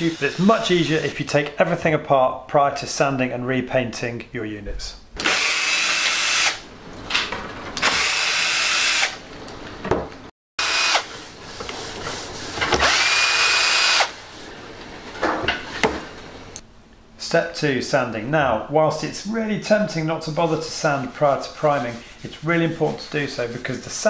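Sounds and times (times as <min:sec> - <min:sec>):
cordless drill whine: 0:07.8 - 0:09.2, 0:10.6 - 0:11.1, 0:12.8 - 0:14.1.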